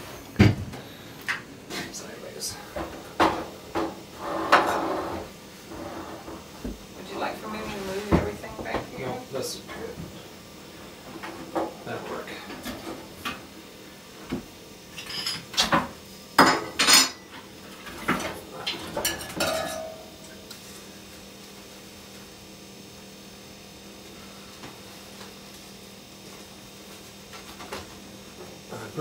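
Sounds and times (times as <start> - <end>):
faint steady hum: 0.0 - 29.0
metal coffee pot clinking on stove: 19.0 - 20.1.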